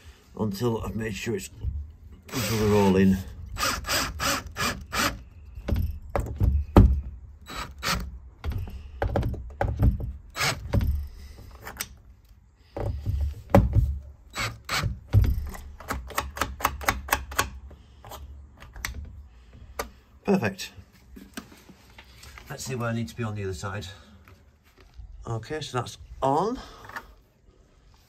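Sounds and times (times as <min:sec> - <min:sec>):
cordless drill driving screws: 0:02.3 - 0:05.2, 0:07.5 - 0:08.1, 0:10.3 - 0:10.7
sharp clicks and knocks: 0:12.8 - 0:20.0.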